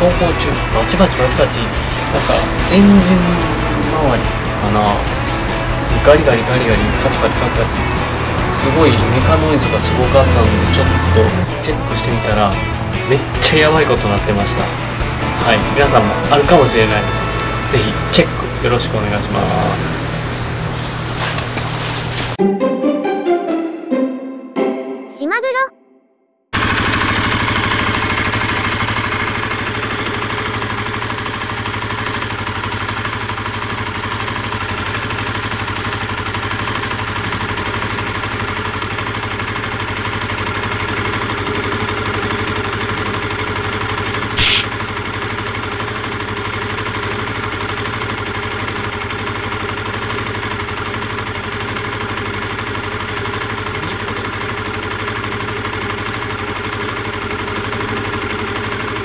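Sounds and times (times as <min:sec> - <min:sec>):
motorcycle engine idling: 0:00.0 - 0:21.1, 0:26.6 - 0:59.0
sharp snap: 0:44.4 - 0:44.7.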